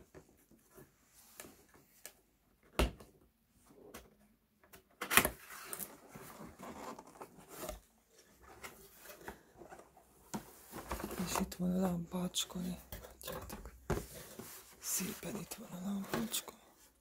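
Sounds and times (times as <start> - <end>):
cardboard scraping and rustling: 5.3 - 11.6, 12.6 - 15.2.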